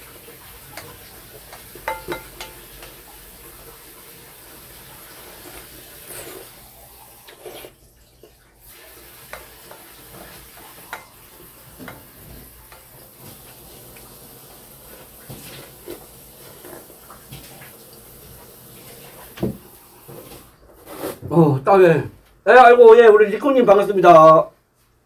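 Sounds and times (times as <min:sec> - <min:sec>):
person slurping broth: 0:05.2 - 0:07.8, 0:20.8 - 0:21.3
person chewing: 0:05.4 - 0:07.8.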